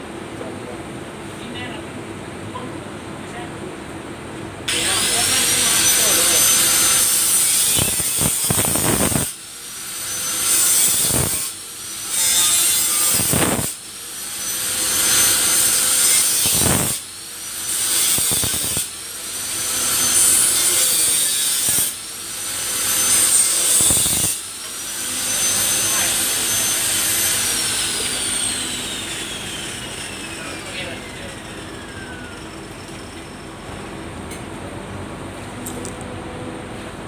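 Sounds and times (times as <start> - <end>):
angle grinder cutting steel: 4.7 - 33.4.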